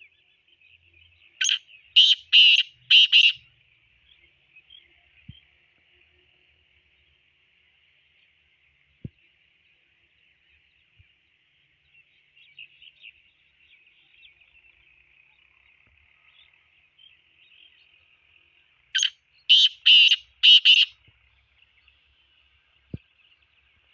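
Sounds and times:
bird harsh rasping call: 0:01.4 - 0:03.4, 0:19.0 - 0:21.0.

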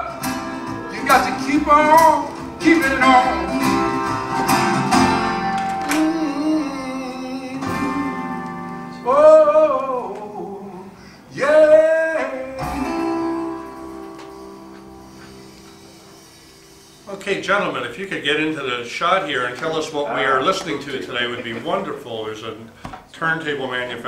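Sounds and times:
plucked acoustic guitar: 0:00.0 - 0:10.8, 0:11.6 - 0:16.8
person singing: 0:00.0 - 0:15.6.

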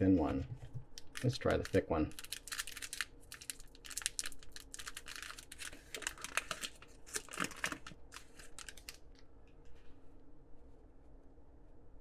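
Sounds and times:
foil wrapper crinkling: 0:01.0 - 0:09.2.

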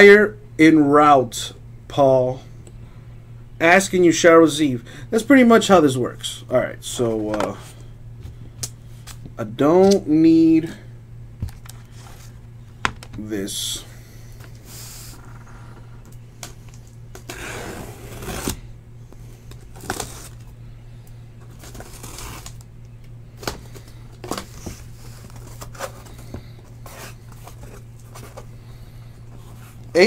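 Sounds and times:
low electrical hum: 0:00.0 - 0:30.0.

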